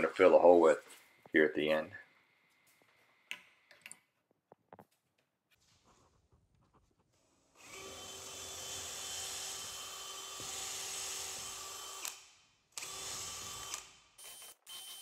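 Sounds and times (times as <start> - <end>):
cordless drill boring into wood: 7.6 - 12.2, 12.8 - 15.0.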